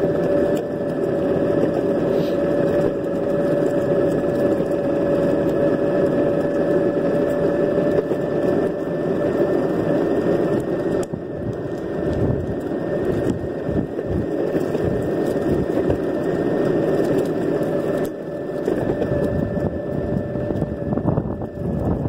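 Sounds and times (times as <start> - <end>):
electric motor whine: 0.0 - 22.0
wheels rolling on asphalt: 0.0 - 22.0.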